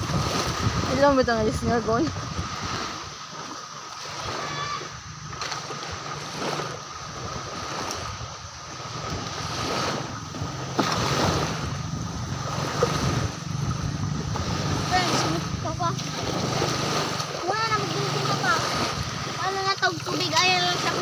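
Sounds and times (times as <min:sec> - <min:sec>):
surf: 0:00.0 - 0:21.0
wind noise on microphone: 0:00.0 - 0:21.0
low hum: 0:08.9 - 0:21.0.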